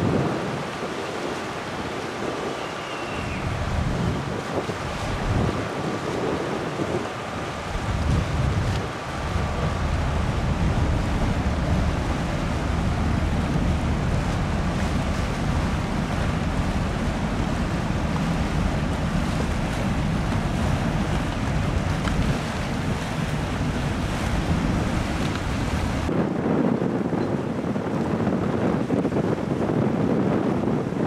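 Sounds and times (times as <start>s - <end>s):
wake washing on water: 0.0s - 26.2s
wind buffeting microphone: 0.0s - 31.0s.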